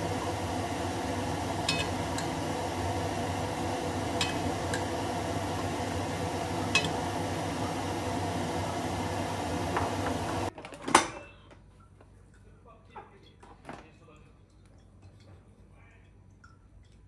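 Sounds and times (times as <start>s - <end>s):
steady mechanical hum: 0.0s - 10.5s.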